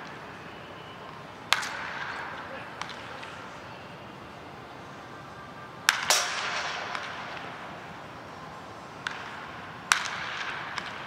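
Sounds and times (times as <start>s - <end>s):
baseball bat cracking ball: 1.1s - 3.6s, 5.8s - 7.9s, 9.0s - 11.0s.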